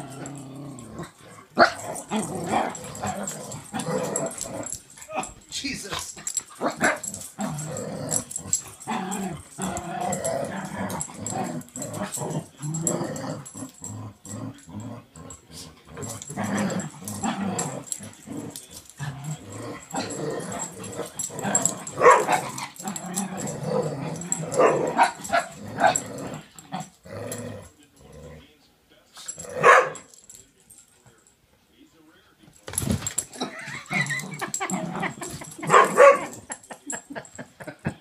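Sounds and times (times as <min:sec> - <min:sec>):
dogs growling: 0:00.0 - 0:28.6, 0:29.2 - 0:30.4, 0:32.7 - 0:38.0
dogs barking sharply: 0:22.0 - 0:22.4, 0:29.6 - 0:30.0.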